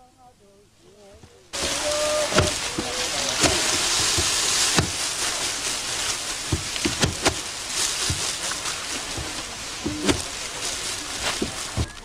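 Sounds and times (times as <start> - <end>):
sickles cutting rice stalks: 1.6 - 12.0
sharp knocks: 6.5 - 7.4.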